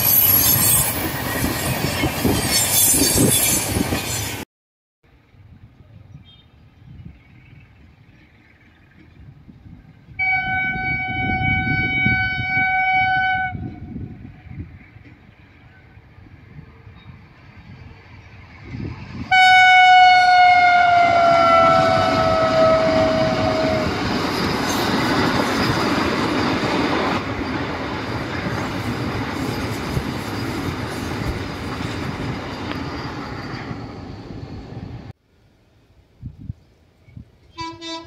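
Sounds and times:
train wheels rushing on rails: 0.0s - 4.4s, 13.6s - 35.1s
train horn blast: 10.2s - 14.1s, 19.3s - 24.0s, 37.5s - 38.0s.

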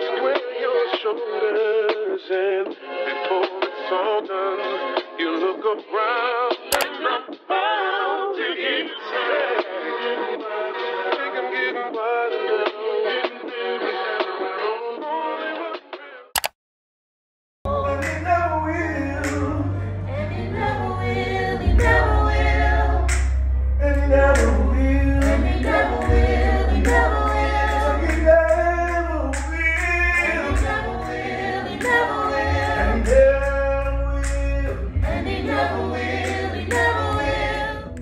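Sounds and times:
choir singing in harmony: 0.0s - 15.8s, 17.7s - 38.0s
steady low bass: 17.7s - 38.0s.

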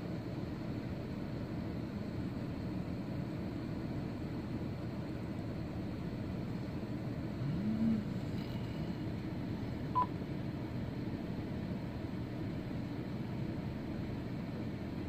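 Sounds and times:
low rumbling background noise: 0.0s - 15.0s.

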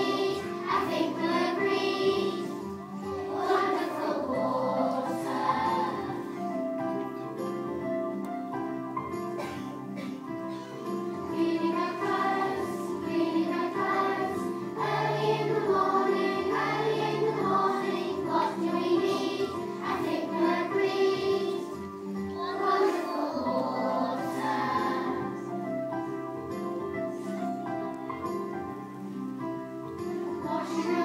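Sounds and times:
children singing: 0.0s - 6.6s, 10.5s - 25.6s, 30.1s - 31.0s.

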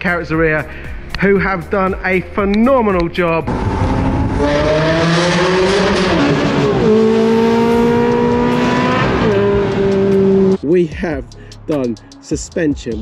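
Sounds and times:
car engine accelerating hard: 3.5s - 10.6s.

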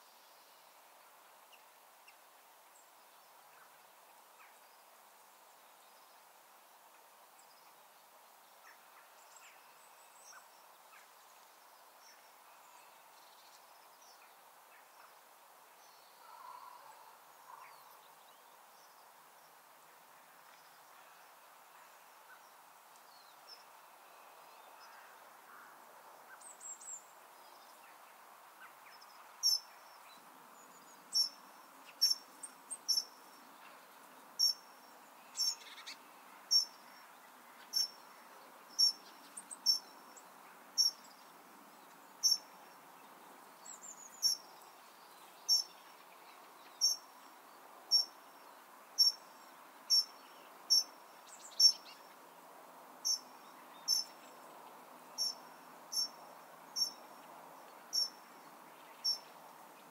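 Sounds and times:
faint steady hiss: 0.0s - 59.9s
cricket chirping: 43.8s - 44.4s, 53.9s - 54.2s, 55.2s - 56.2s, 56.8s - 57.0s, 57.9s - 58.2s.

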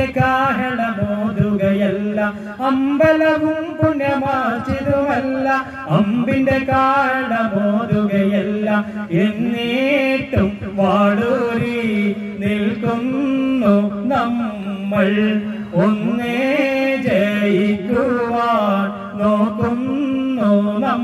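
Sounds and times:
man singing into a microphone: 0.0s - 21.0s.

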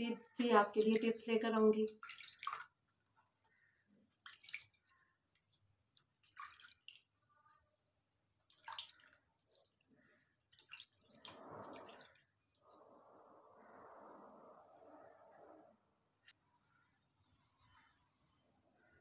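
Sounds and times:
water sloshing in plastic basin: 0.6s - 2.8s, 4.2s - 7.2s, 8.4s - 12.7s.

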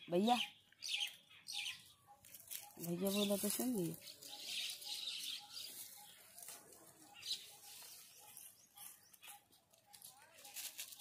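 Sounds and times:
footsteps through dry leaves: 1.0s - 11.0s.

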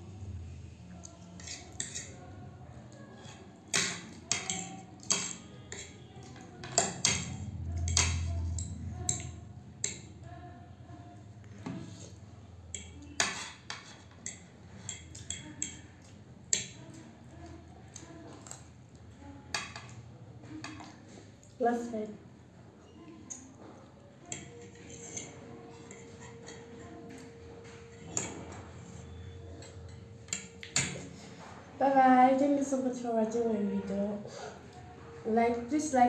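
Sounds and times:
fork and spoon clinking on a plate: 3.2s - 10.1s, 12.7s - 15.9s, 24.3s - 31.2s.

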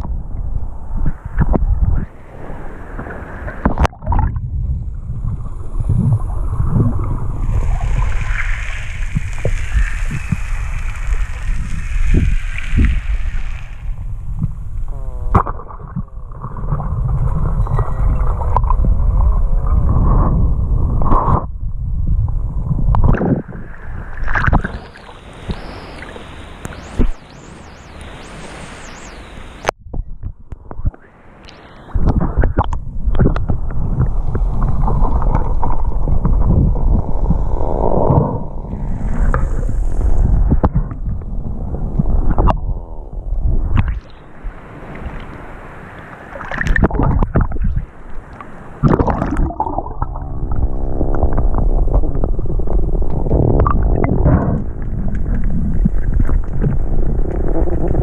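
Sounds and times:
muffled underwater rumble: 0.0s - 45.3s, 46.5s - 58.0s
rushing splash: 5.8s - 14.1s, 43.8s - 57.7s
gurgling with squeaky tones: 53.2s - 58.0s.

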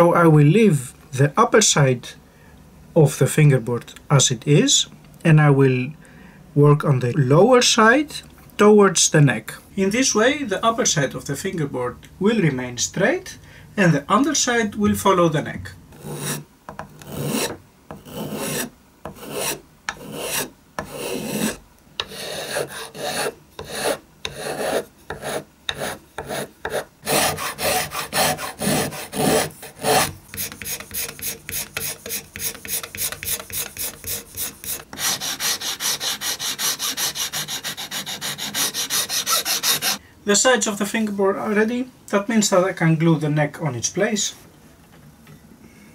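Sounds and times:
scraping and rubbing on wood: 16.0s - 40.0s
file strokes on wood: 17.0s - 40.0s.

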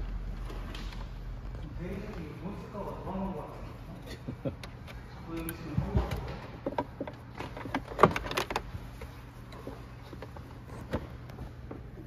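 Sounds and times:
steady low hum: 0.0s - 12.0s
tools clicking and knocking: 4.5s - 8.7s.

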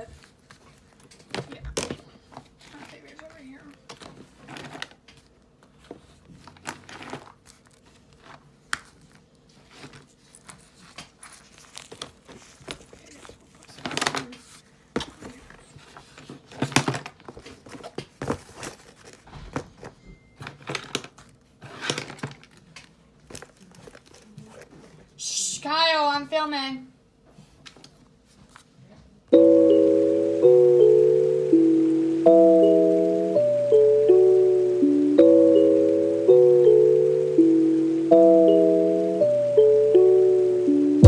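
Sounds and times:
makeup bags rustling: 2.2s - 22.6s, 23.2s - 25.0s.

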